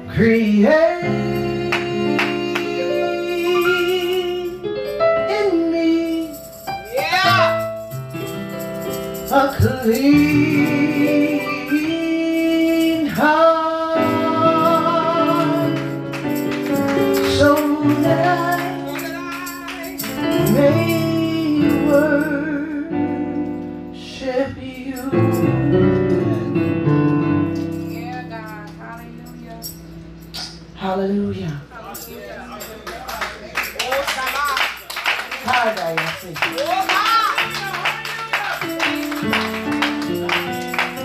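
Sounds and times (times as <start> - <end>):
woman singing gospel song: 0.0 - 7.6, 9.3 - 16.0, 16.9 - 23.1, 24.0 - 26.7, 30.8 - 32.1, 36.5 - 39.5
instrumental chords: 0.9 - 33.0, 36.2 - 41.0.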